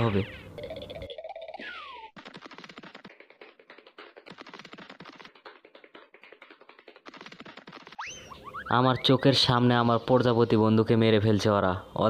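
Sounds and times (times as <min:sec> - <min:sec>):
faint rapid clicking: 0:02.2 - 0:08.0.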